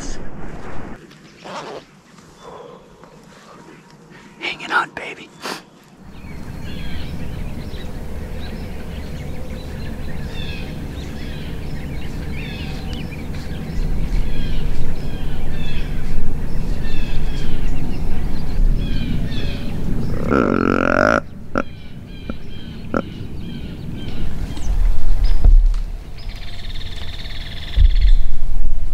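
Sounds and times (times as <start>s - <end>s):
small birds chirping: 1.2s - 28.4s
outdoor air rumble: 5.9s - 28.9s.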